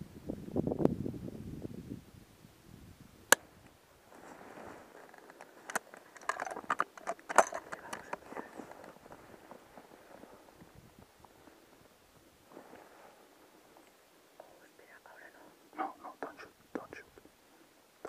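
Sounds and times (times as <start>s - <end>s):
rustling: 3.9s - 14.8s.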